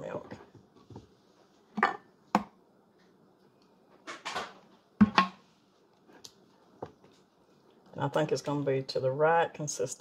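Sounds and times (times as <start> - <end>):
plastic bottle knocking on wood: 5.0 - 5.4.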